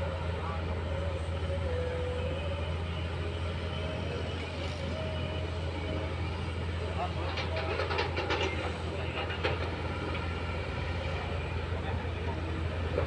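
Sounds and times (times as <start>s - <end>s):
thin wavering whine: 0.0s - 7.6s
diesel engines droning: 0.0s - 13.0s.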